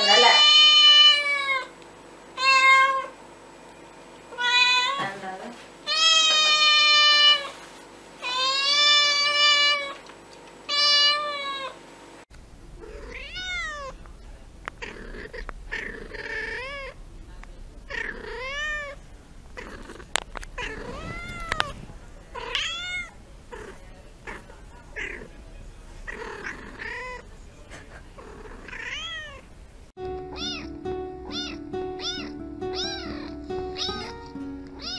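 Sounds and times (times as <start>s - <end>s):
cat meowing close to microphone: 0.0s - 1.7s, 2.4s - 3.1s, 4.3s - 5.1s, 5.9s - 7.5s, 8.2s - 10.0s, 10.7s - 11.8s, 12.8s - 14.0s, 20.6s - 24.4s, 28.5s - 29.4s, 30.3s - 30.7s, 31.3s - 34.2s
cat meowing loudly: 4.3s - 5.1s, 10.7s - 11.8s, 12.8s - 14.0s, 20.6s - 21.8s, 22.4s - 24.4s, 28.6s - 29.4s, 30.3s - 30.7s, 31.3s - 34.2s.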